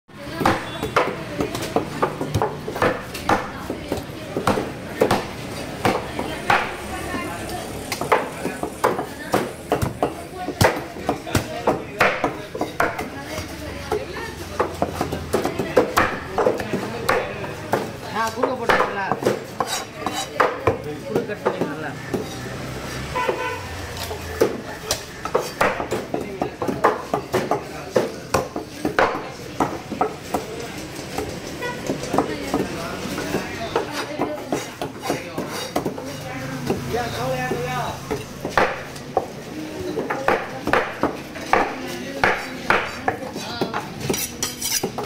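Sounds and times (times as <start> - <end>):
knife scraping fish scales: 19.6 - 20.3, 44.1 - 45.0.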